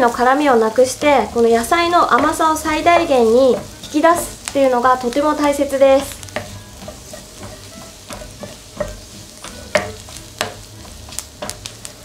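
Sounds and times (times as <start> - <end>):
onions sizzling in a frying pan: 0.0 - 12.0.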